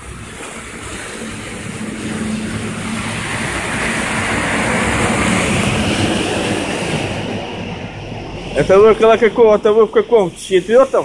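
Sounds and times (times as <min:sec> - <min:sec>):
truck driving past: 0:00.0 - 0:10.6
tyres hissing on slush: 0:09.9 - 0:11.0.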